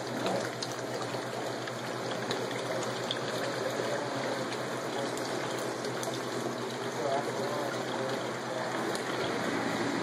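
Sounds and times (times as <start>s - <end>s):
water rushing and trickling: 0.0s - 10.0s.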